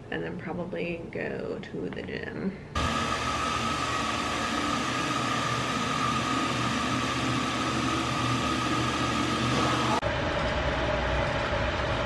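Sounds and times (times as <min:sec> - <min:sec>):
steady high whine: 0:02.8 - 0:12.0.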